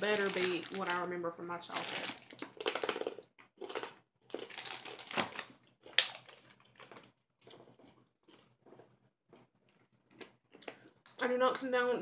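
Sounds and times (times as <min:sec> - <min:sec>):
hard candy crunching: 0:00.0 - 0:01.0, 0:01.6 - 0:11.2
plastic bottle crackling: 0:00.0 - 0:07.6.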